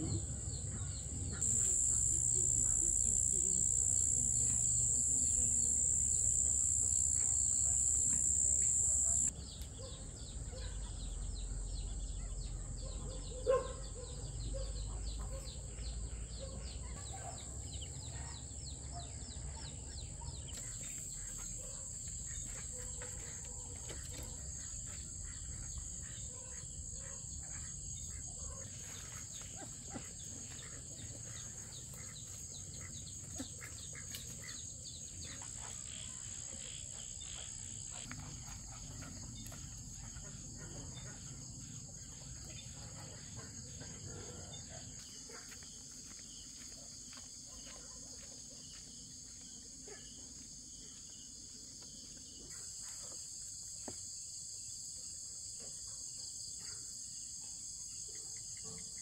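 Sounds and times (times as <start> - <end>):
insects trilling: 0.0 - 9.3, 20.3 - 43.2.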